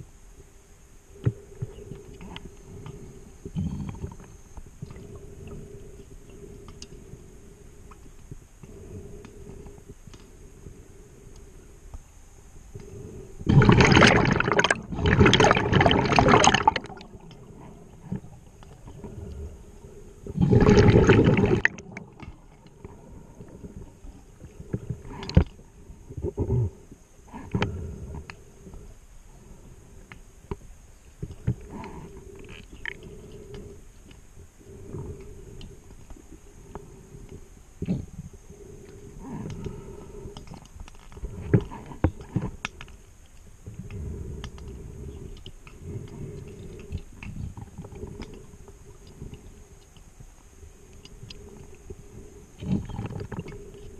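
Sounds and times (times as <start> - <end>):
regulator bubbles underwater: 13.4 - 19.2, 20.3 - 25.6
faint clicks and knocks: 38.8 - 52.0.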